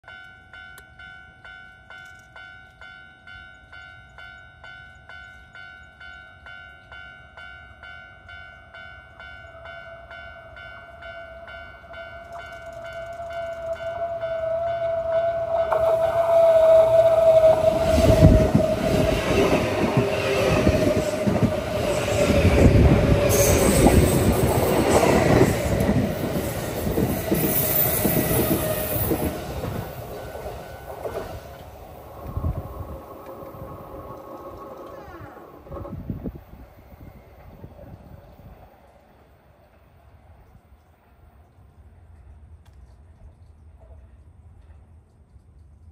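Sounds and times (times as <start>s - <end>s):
level-crossing warning bell: 0.0s - 35.7s
train wheels clattering over rails: 15.4s - 36.1s.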